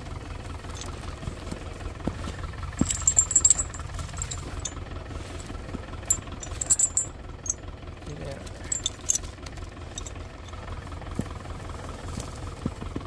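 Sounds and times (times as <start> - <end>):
tractor engine idling: 0.0 - 13.0
sharp clinks and rattles: 0.7 - 1.1, 2.7 - 4.9, 6.0 - 7.7, 8.5 - 10.7.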